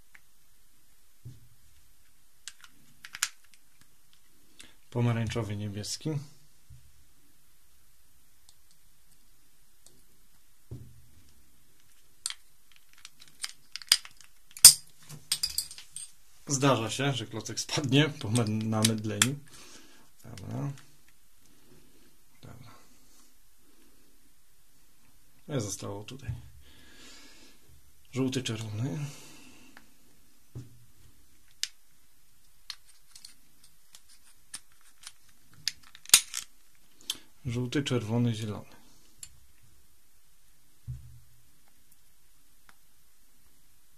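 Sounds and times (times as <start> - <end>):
plastic cube pieces clicking: 2.4 - 3.9, 12.2 - 14.8
plastic puzzle pieces clicking: 2.4 - 3.9, 11.8 - 14.8, 32.7 - 36.5.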